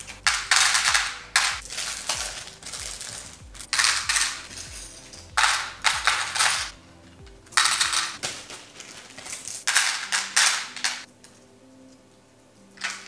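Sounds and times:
plastic picks clattering in box: 0:07.5 - 0:11.1.

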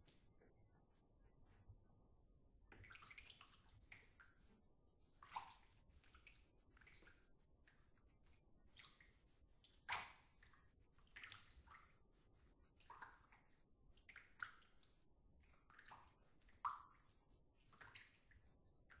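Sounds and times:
bathwater sloshing and dripping: 0:02.6 - 0:19.0
small water splashes: 0:02.7 - 0:04.6, 0:05.2 - 0:08.0, 0:08.7 - 0:12.1, 0:12.8 - 0:19.0.

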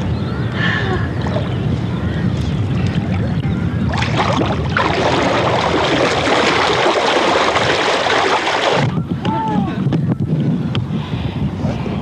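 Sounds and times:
river water rushing and splashing: 0:04.0 - 0:08.9.

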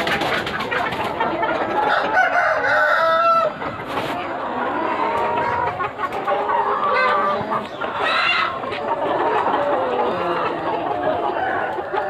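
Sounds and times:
chickens clucking: 0:00.0 - 0:12.0
rooster crowing: 0:01.9 - 0:03.6.

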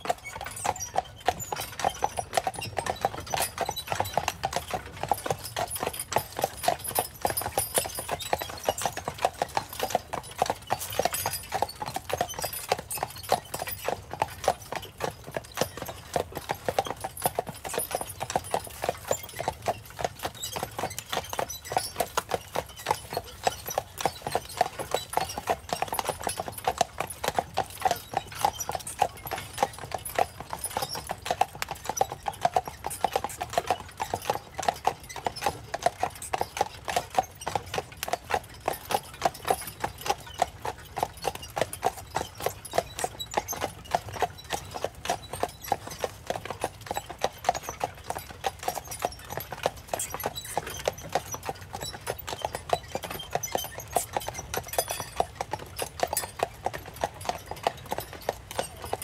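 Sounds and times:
horse hooves clip-clopping on pavement: 0:00.0 - 0:59.0.

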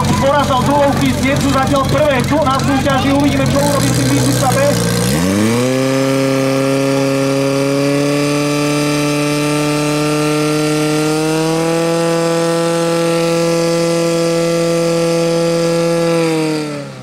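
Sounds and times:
pump engine at full throttle: 0:00.0 - 0:17.0.

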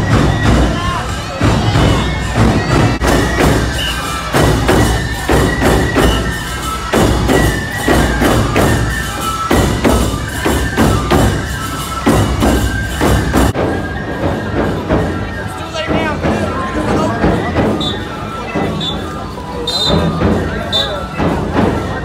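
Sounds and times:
bamboo flute melody: 0:00.0 - 0:22.0
taiko drums: 0:00.0 - 0:22.0.

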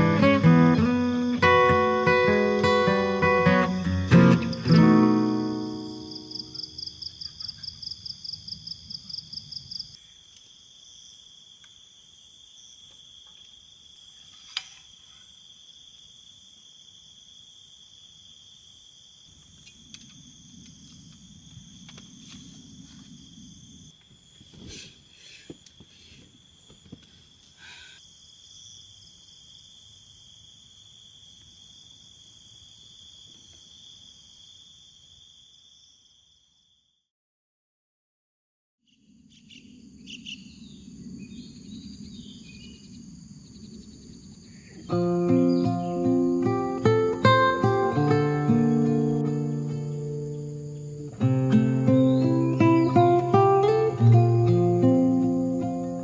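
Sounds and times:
guitar music: 0:00.0 - 0:06.6, 0:44.9 - 0:56.0
crickets trilling: 0:00.0 - 0:37.0, 0:38.9 - 0:56.0.

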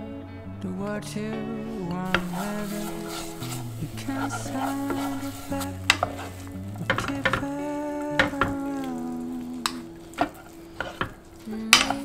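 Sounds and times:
soft background music: 0:00.0 - 0:12.0
wet squelching stirring: 0:02.0 - 0:12.0
spatulas knocking against pan: 0:06.9 - 0:07.5, 0:10.1 - 0:12.0.

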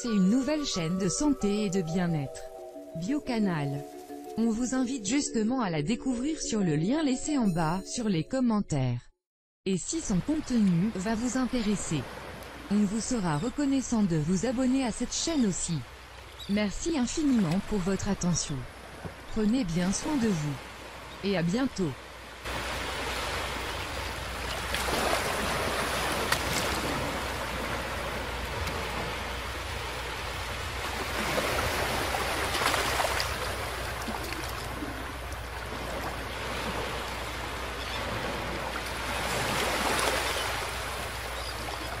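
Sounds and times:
small waves breaking on beach: 0:10.3 - 0:12.8, 0:17.1 - 0:42.0.

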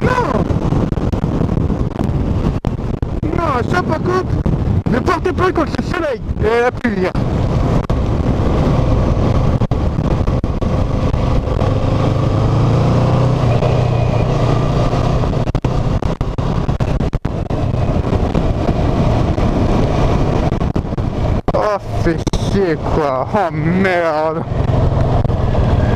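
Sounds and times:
wind noise on microphone: 0:00.0 - 0:25.9
motorcycle engine running: 0:06.2 - 0:25.9.

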